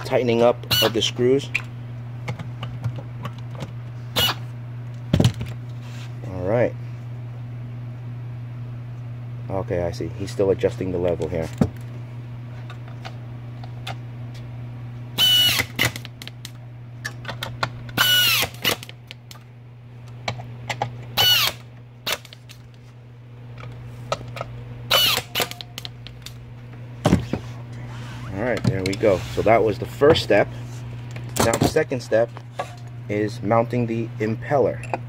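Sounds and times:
electric screwdriver whining: 4.2s - 4.4s, 15.2s - 16.1s, 17.9s - 19.0s, 21.2s - 22.4s, 24.9s - 25.9s.

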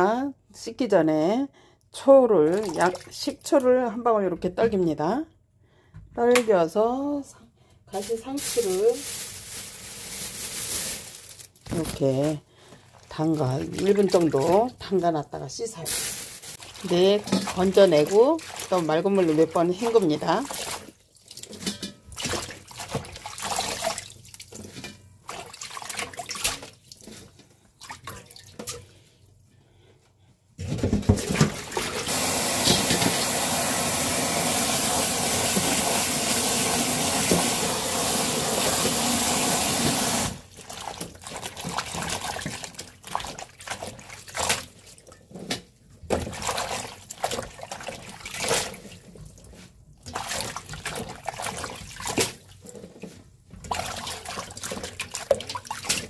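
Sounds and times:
hands splashing water in bowl: 16.6s - 28.8s, 50.0s - 52.6s, 53.6s - 56.0s.

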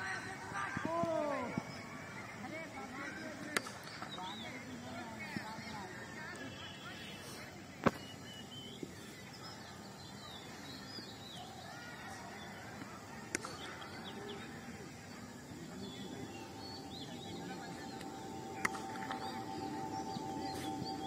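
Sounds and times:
outdoor background noise: 0.0s - 21.0s
small birds chirping: 1.2s - 21.0s
faint steady tone: 13.3s - 21.0s.

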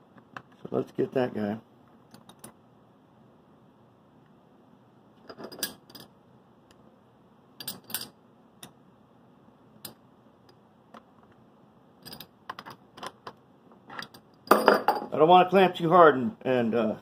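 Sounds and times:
metal clinks and knocks: 2.1s - 2.6s, 5.2s - 6.1s, 7.6s - 8.8s, 12.0s - 15.1s.

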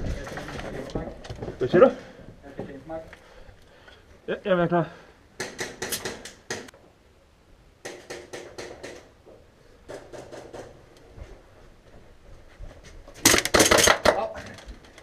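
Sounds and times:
airsoft guns firing: 13.2s - 14.3s.

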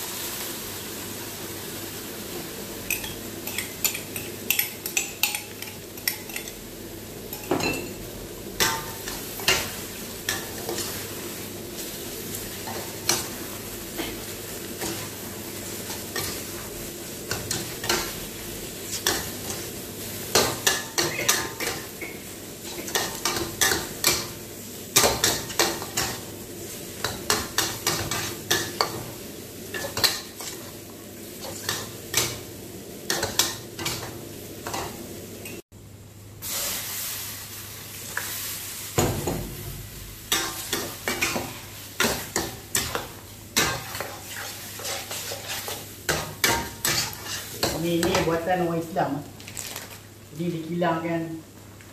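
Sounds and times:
noodles sizzling: 0.0s - 51.9s
spatula scraping a steel wok: 10.3s - 11.1s, 27.0s - 29.1s, 29.7s - 30.8s, 40.3s - 48.2s.

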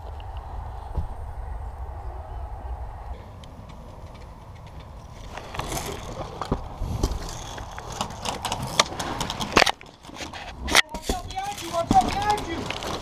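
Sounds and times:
low rumble: 0.0s - 8.0s
scraping: 3.1s - 13.0s.

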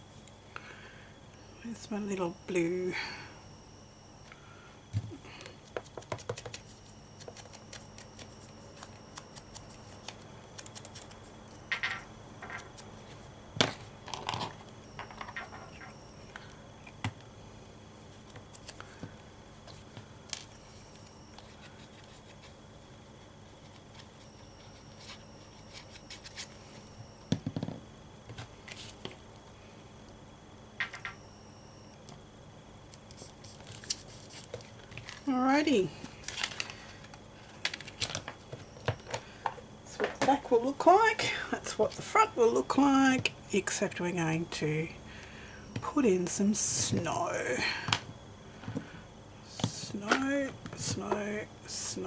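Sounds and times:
paper rustling: 33.1s - 35.2s, 36.2s - 38.3s.

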